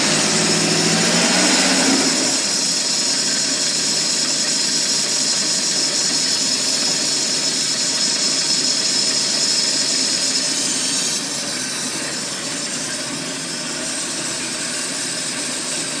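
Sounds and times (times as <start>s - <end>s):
boat engine running: 0.0s - 5.2s.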